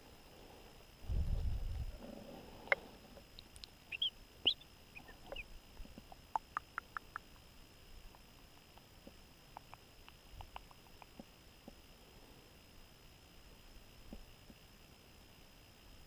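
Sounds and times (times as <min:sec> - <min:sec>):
faint clicks: 0:02.7 - 0:03.8, 0:08.1 - 0:11.8
high chirps: 0:03.6 - 0:05.5.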